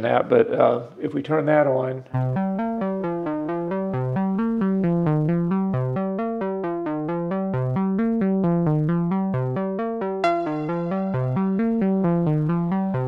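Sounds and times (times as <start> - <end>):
synthesizer sequenced notes: 2.1 - 13.0
bright synthesizer note: 10.2 - 11.8
synthesizer bass note: 10.2 - 13.0.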